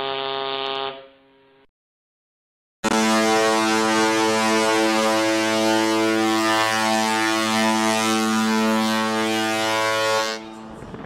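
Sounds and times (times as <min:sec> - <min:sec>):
deep ship horn blast: 0:02.8 - 0:11.0.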